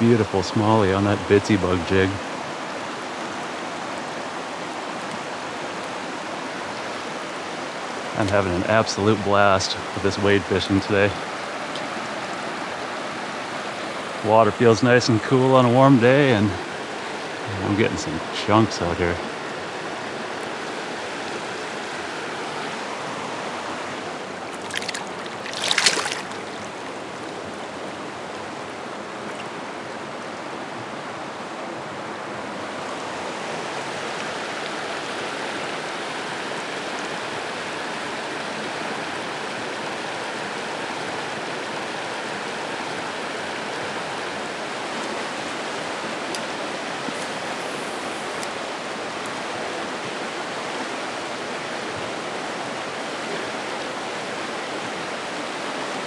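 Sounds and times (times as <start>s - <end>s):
river rushing over rocks: 0.0s - 56.0s
water splash: 24.4s - 27.4s.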